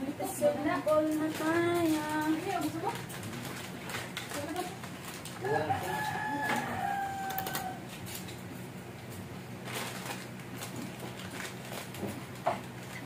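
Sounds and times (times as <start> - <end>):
plastic bag crinkling: 0.8 - 8.4, 9.6 - 13.0
rooster crowing: 5.4 - 8.0.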